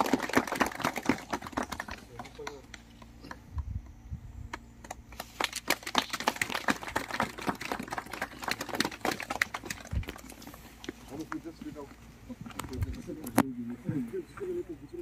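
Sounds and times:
crowd clapping: 0.0s - 3.4s, 4.8s - 10.3s.

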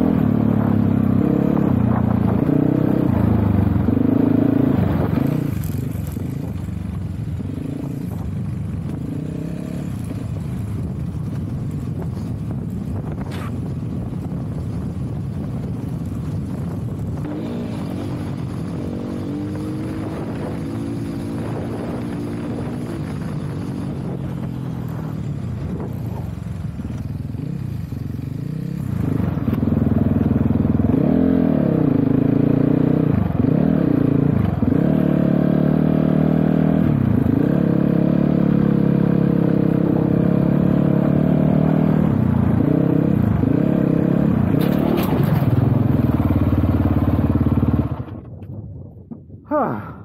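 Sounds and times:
dirt bike engine revving: 17.2s - 26.2s, 28.2s - 48.1s.

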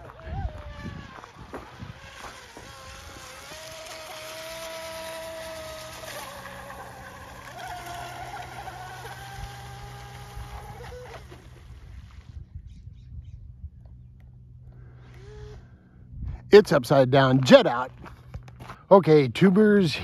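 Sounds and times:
electric boat motor whining: 0.0s - 12.4s, 13.9s - 16.1s.

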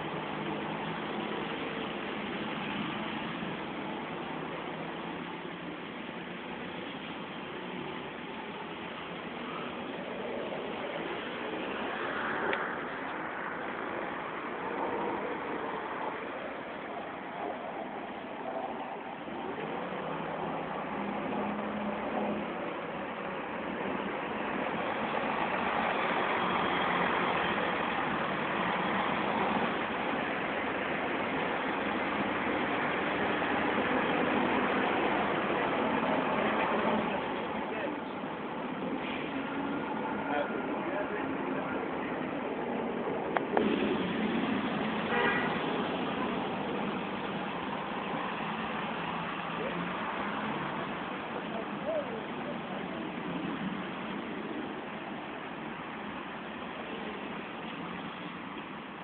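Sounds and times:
bus engine running: 0.0s - 59.0s
street traffic noise: 0.0s - 59.0s
vehicle horn toot: 45.0s - 45.7s.

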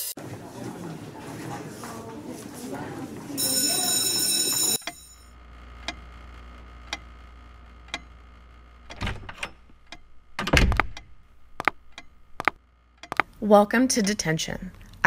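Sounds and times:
low steady hum: 4.8s - 15.0s.

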